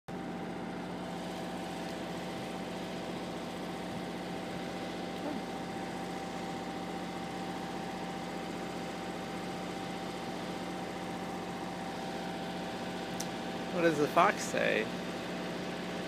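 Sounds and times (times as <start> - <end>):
steady mechanical hum: 0.1 - 16.0.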